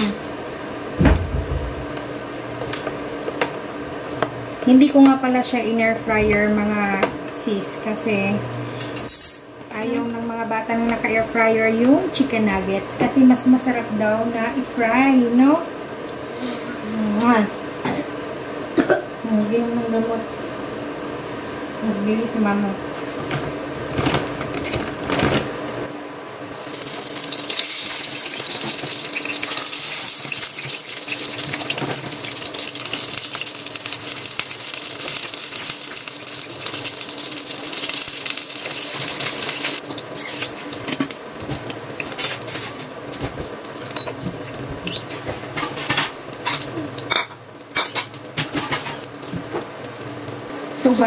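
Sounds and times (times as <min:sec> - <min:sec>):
food sizzling in hot oil: 0:26.5 - 0:51.0.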